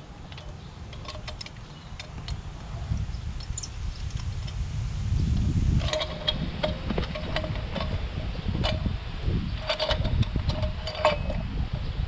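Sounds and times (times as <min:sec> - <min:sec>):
metal pipe clinking: 0:05.8 - 0:08.9, 0:09.6 - 0:11.6.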